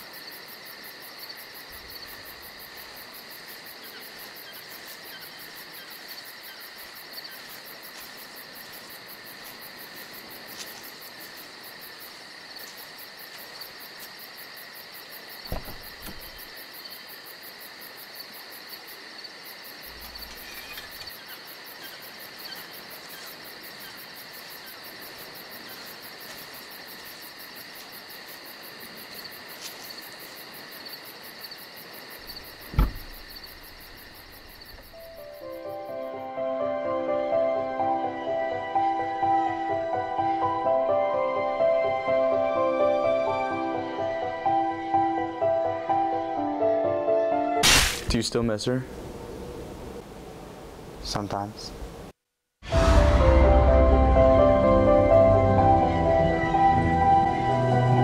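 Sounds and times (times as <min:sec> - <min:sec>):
crickets chirping: 0:00.0 - 0:46.8, 0:47.6 - 0:52.1
dull thump: 0:15.4 - 0:16.5, 0:32.3 - 0:34.9.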